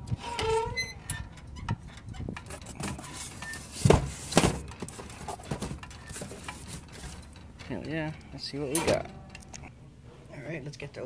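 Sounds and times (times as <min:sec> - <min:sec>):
metal door opening: 0:00.0 - 0:09.7
clicks and rattles: 0:01.0 - 0:09.7.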